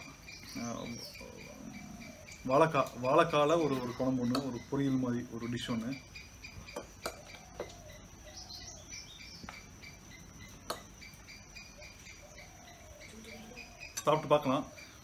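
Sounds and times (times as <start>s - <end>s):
birds chirping: 0.0s - 15.0s
insects chirping: 0.0s - 15.0s.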